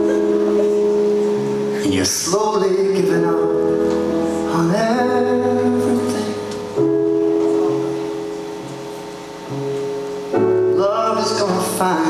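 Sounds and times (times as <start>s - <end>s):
sustained instrumental chords: 0.0s - 12.0s
man singing long held notes: 1.8s - 6.7s, 10.6s - 12.0s.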